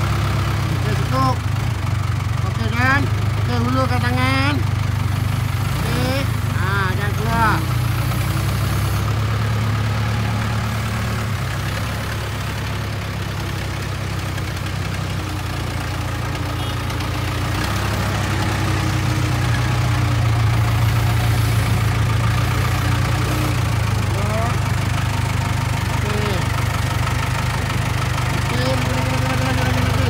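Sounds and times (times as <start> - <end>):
diesel engine running at low revs: 0.0 - 30.0.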